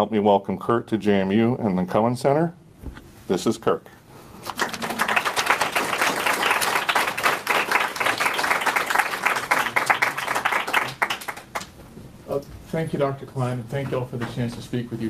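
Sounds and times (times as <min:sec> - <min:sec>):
audience applauding: 0:04.5 - 0:11.7.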